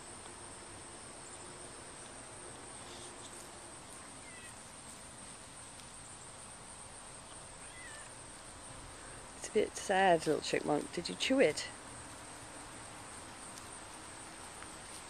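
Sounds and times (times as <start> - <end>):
high insect buzz: 0.0 - 10.4.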